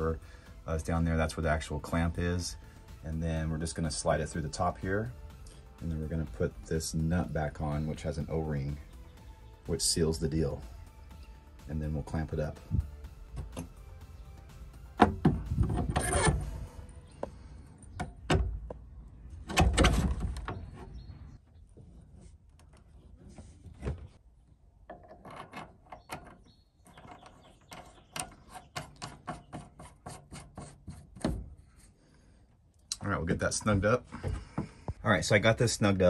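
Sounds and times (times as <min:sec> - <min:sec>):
metal parts knocking and scraping: 0:15.0 - 0:16.6.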